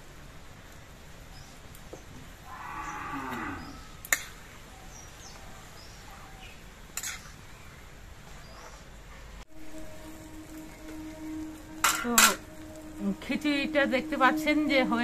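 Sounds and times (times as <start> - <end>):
cow mooing: 2.5 - 3.9.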